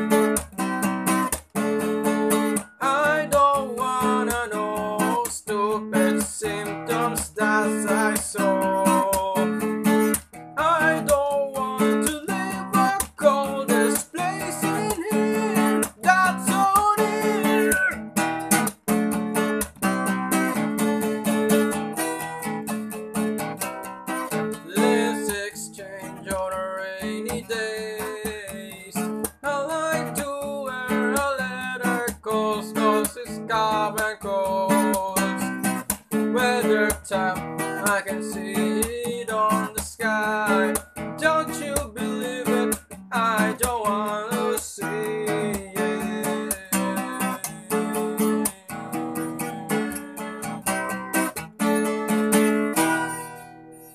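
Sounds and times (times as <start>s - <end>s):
acoustic guitar strumming: 0.0s - 53.9s
bending melody line: 10.8s - 18.6s.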